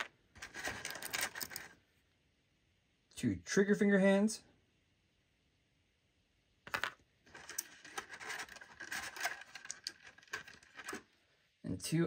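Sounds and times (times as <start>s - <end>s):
plastic parts clicking: 0.0s - 1.8s, 6.7s - 11.0s
plastic parts rubbing and scraping: 0.0s - 1.8s, 6.7s - 11.1s.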